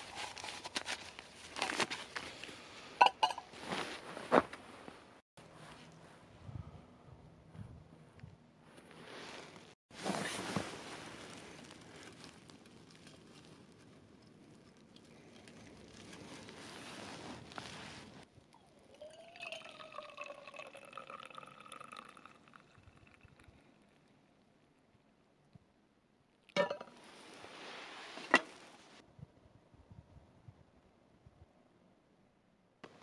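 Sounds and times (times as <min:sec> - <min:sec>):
liquid pouring and trickling: 0:18.4 - 0:24.1.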